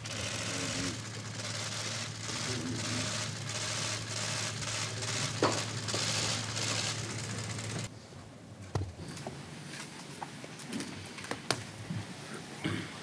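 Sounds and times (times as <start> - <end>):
steady low hum: 0.0 - 9.6.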